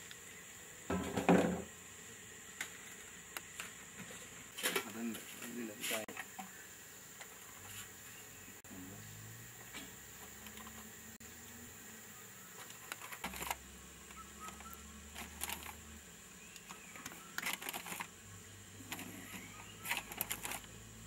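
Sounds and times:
foil bag crinkling: 12.7s - 13.6s, 14.6s - 15.8s, 16.6s - 18.1s, 18.9s - 20.7s.

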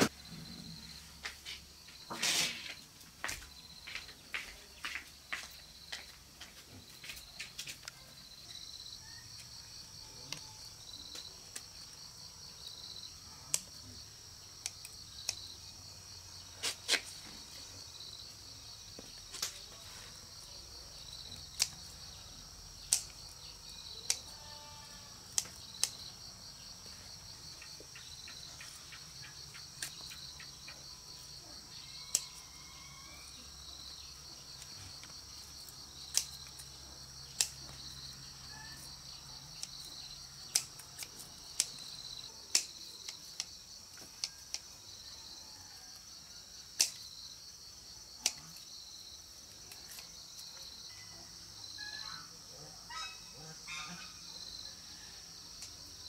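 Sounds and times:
insect chorus trilling: 7.0s - 56.0s
sharp clicks: 22.8s - 23.3s.

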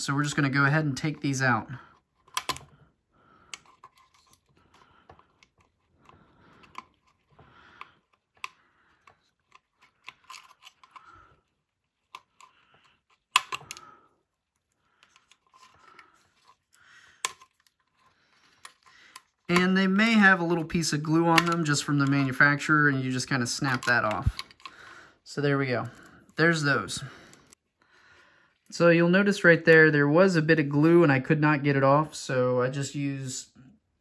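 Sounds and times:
wires rustling and scraping: 0.0s - 27.8s
plastic plugs clicking and snapping: 1.9s - 2.8s, 3.5s - 11.3s, 11.9s - 13.9s, 17.2s - 19.8s, 21.3s - 22.4s, 23.5s - 24.8s.

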